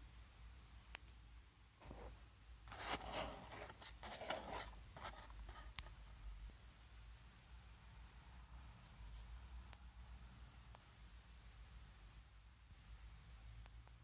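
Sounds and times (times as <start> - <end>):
packaging rustling and scraping: 2.7 - 5.7.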